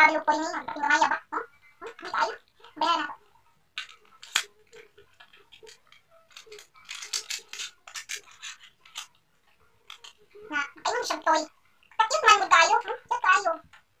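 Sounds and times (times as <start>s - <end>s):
plastic clicks and taps: 3.8s - 9.2s.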